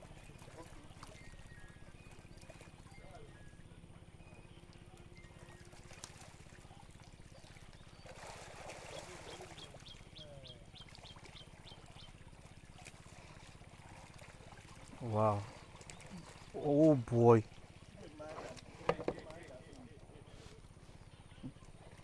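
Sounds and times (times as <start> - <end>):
pond water sloshing and splashing: 0.0 - 22.0.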